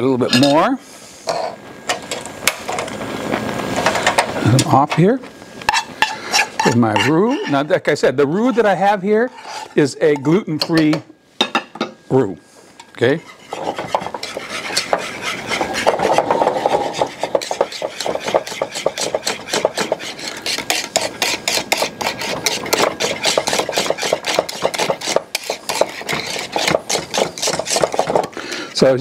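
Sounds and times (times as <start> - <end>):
whisk scraping saucepan: 5.7 - 11.0, 12.8 - 28.4.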